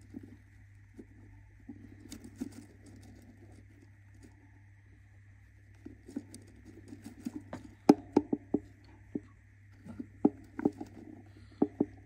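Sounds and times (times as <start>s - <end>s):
bird tapping and scratching wood: 5.8s - 12.0s.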